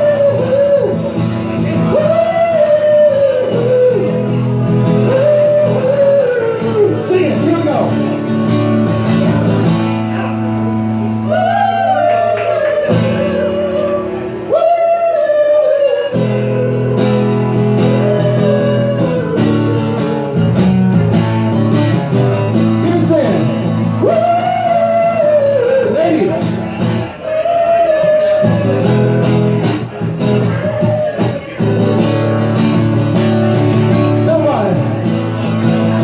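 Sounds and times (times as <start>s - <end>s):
man singing: 0.0s - 8.0s, 12.8s - 20.6s, 22.8s - 26.6s
acoustic guitar strumming: 0.0s - 36.0s.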